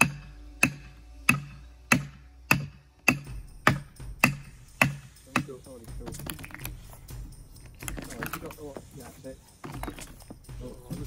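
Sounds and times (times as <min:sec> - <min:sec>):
hammer striking metal wedges: 0:00.0 - 0:06.1.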